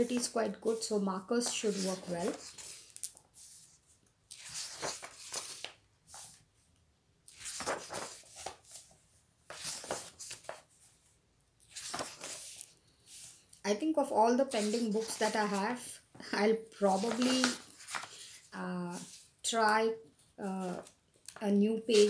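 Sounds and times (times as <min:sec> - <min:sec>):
book pages turning: 0:00.0 - 0:06.4, 0:07.3 - 0:10.7, 0:11.6 - 0:13.5, 0:14.5 - 0:15.8, 0:16.8 - 0:19.3, 0:20.8 - 0:22.0.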